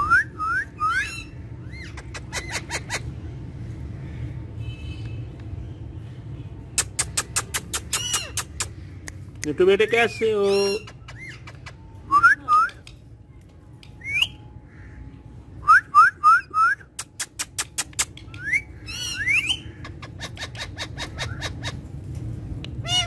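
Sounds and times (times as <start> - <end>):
sharp ticking bird notes: 15.9 - 21.6
parakeet whistled chirps: 18.3 - 19.7.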